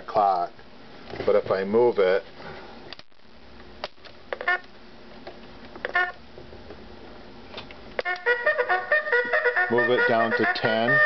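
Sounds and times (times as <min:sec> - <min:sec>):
alarm clock electronic melody: 0:08.2 - 0:11.0.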